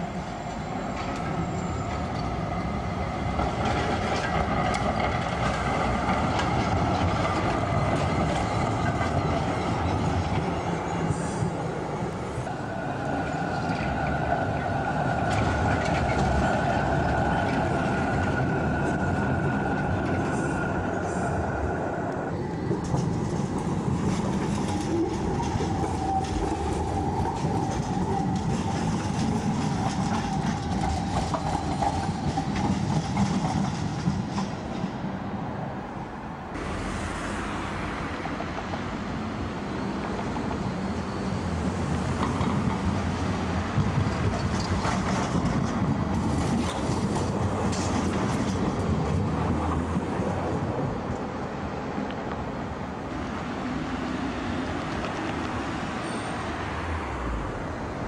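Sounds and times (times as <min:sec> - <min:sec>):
high wheel squeal: 0:00.0 - 0:03.0, 0:55.9 - 0:56.8
tram wheels clattering on rails: 0:00.0 - 0:35.5, 0:36.5 - 0:58.0
tram rolling past: 0:00.0 - 0:58.0.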